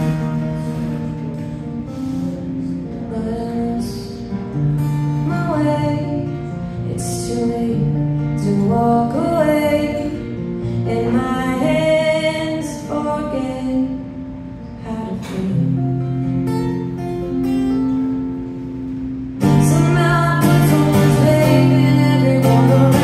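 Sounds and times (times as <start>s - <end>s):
acoustic guitar: 0.0s - 23.0s
woman singing: 2.5s - 14.2s, 14.8s - 16.2s, 19.4s - 23.0s.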